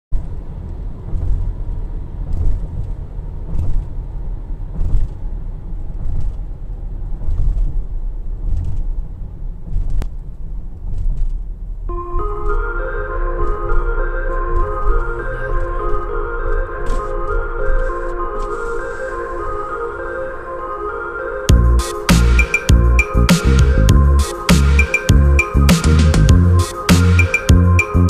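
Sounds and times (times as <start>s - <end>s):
car driving road noise: 0.1s - 28.0s
soft music with mallet tones: 11.9s - 28.0s.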